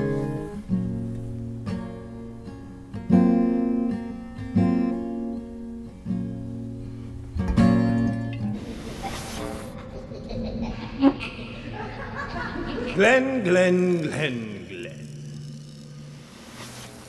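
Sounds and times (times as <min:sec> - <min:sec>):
acoustic guitar strummed chords: 0:00.0 - 0:08.7.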